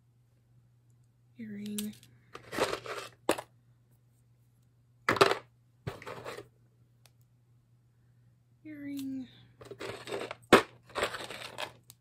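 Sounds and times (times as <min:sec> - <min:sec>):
low steady hum: 0:00.0 - 0:12.0
jewelry clattering: 0:01.8 - 0:03.5, 0:09.6 - 0:11.8.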